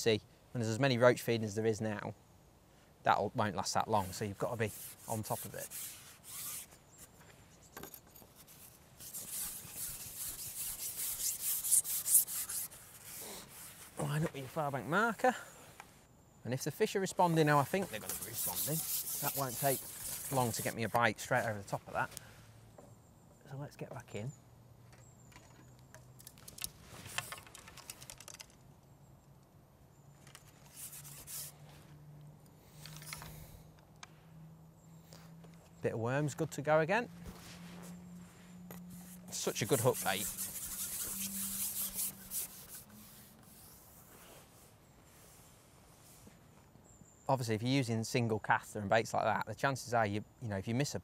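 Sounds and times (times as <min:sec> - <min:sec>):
fishing pole rasping through hands: 0:04.0 - 0:14.5, 0:17.3 - 0:21.0, 0:38.7 - 0:44.5
fishing tackle rustling: 0:17.2 - 0:22.3, 0:26.2 - 0:28.6, 0:37.2 - 0:42.9
fishing tackle clicking: 0:26.1 - 0:28.6.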